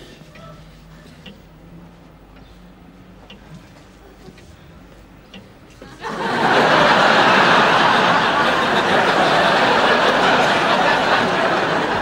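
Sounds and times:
audience laughing: 5.9 - 12.0.

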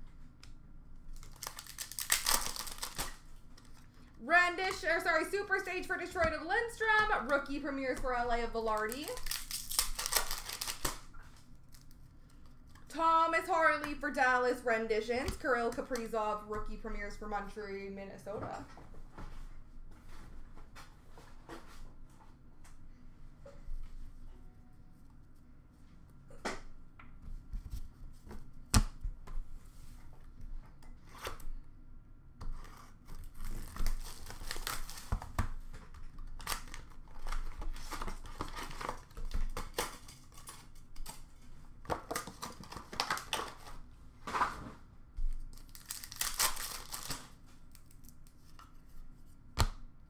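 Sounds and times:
foil wrapper tearing and crinkling: 1.2 - 3.9, 8.8 - 12.0, 33.2 - 35.4, 36.2 - 41.2, 45.5 - 48.2.

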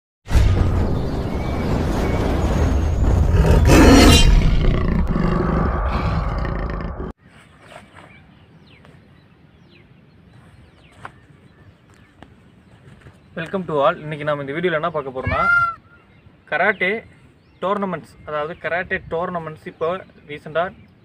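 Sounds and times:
outdoor ambience: 0.3 - 21.0
beast roaring: 3.2 - 7.1.

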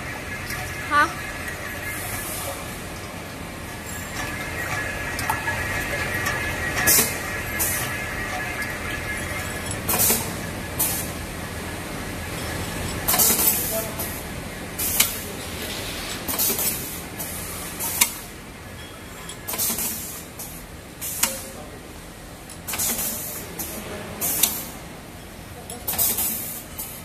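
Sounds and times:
low machine hum: 0.0 - 16.2
sharp pneumatic click: 22.7 - 23.2.

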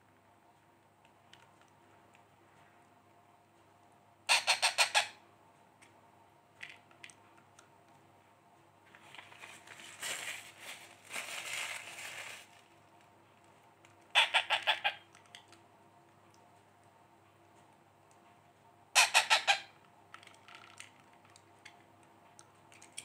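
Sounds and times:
parrot chick begging calls: 4.3 - 5.2, 14.1 - 15.0, 19.0 - 19.7.

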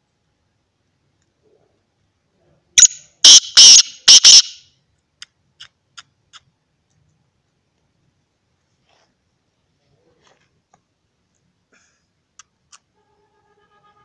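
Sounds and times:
francolin calling: 2.8 - 4.6.

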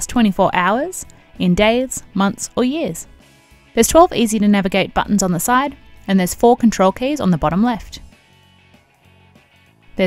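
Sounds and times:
quiet background music: 0.0 - 10.0.

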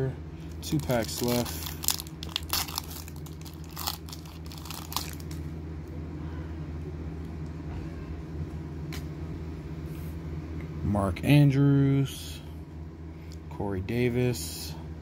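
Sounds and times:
steady low hum: 0.0 - 15.0
wrapper tearing and crinkling: 0.6 - 5.4.

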